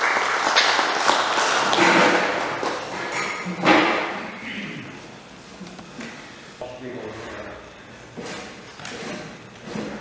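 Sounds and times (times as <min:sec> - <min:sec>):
audience applause: 0:00.0 - 0:02.9.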